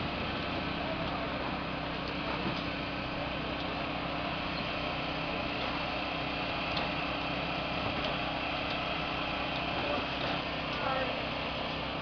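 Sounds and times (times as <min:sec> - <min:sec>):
engine humming steadily: 0:00.0 - 0:12.0.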